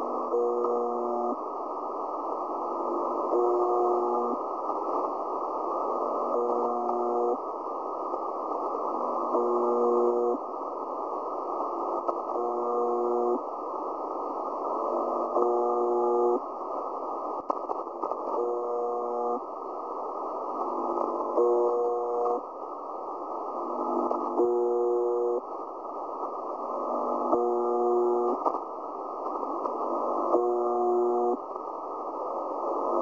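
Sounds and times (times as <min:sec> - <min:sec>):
low pitched radio buzz: 0:00.0 - 0:01.4, 0:03.3 - 0:04.4, 0:06.2 - 0:07.4, 0:09.3 - 0:10.4, 0:12.3 - 0:13.4, 0:15.2 - 0:16.4, 0:18.4 - 0:19.5, 0:21.3 - 0:22.4, 0:23.8 - 0:25.4, 0:27.2 - 0:28.5, 0:30.3 - 0:31.4
radio static and hiss: 0:00.0 - 0:33.0.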